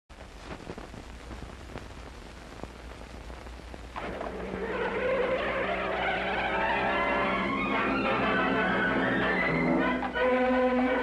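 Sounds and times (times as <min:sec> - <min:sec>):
film soundtrack hiss and hum: 0:00.1 - 0:11.0
scattered crackles: 0:00.1 - 0:11.0
music: 0:04.0 - 0:11.0.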